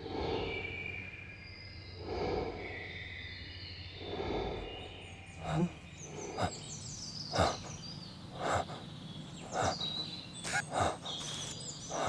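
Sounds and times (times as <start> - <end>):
man breathing heavily: 4.0 - 12.0
bird trilling: 5.4 - 12.0.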